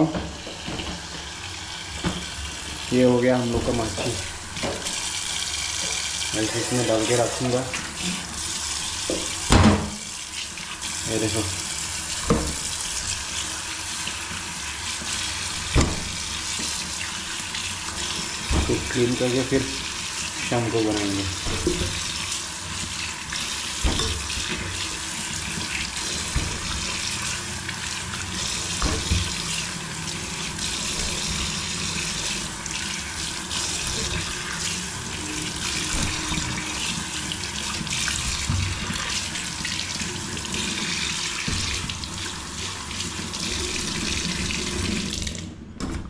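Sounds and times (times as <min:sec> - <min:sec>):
tap running into steel sink: 0:12.2 - 0:12.8, 0:15.7 - 0:16.8, 0:21.3 - 0:22.1, 0:23.8 - 0:27.1, 0:28.8 - 0:29.4.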